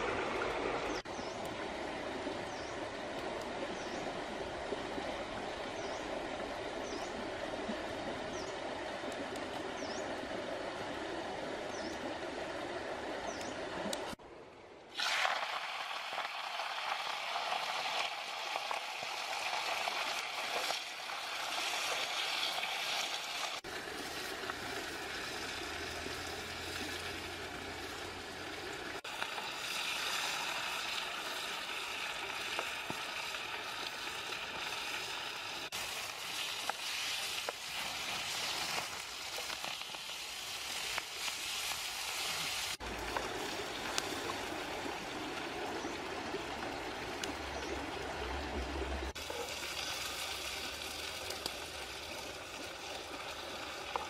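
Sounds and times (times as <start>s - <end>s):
vegetables sizzling in a wok: 15.0s - 28.2s, 29.0s - 44.1s, 49.1s - 54.0s.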